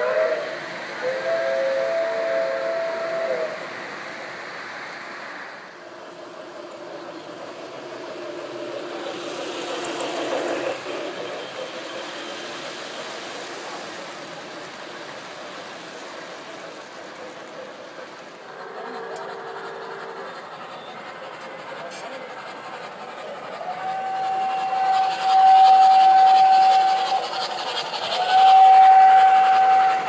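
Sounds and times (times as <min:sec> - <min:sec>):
model trains rumbling on track: 0:00.0 - 0:30.0.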